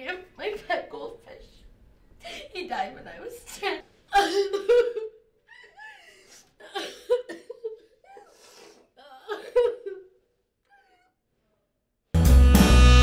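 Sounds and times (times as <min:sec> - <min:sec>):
woman sobbing: 0:04.1 - 0:11.2.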